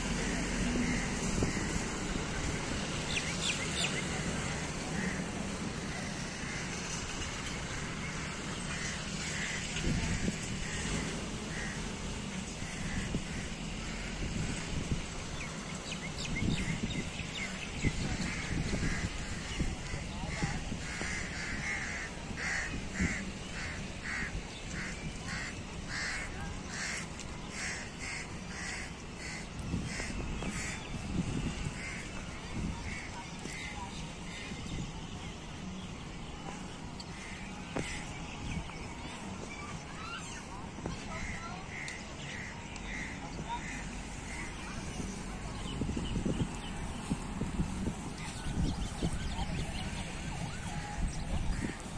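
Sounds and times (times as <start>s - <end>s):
steady rumble and hiss: 0.0s - 51.9s
crows cawing: 20.8s - 30.8s.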